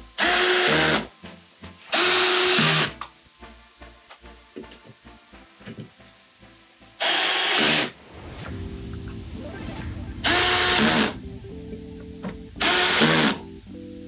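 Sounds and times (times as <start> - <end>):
background music: 0.0 - 14.0
cordless drill running: 0.2 - 1.1, 1.9 - 2.9, 7.0 - 7.9, 10.3 - 11.2, 12.6 - 13.4.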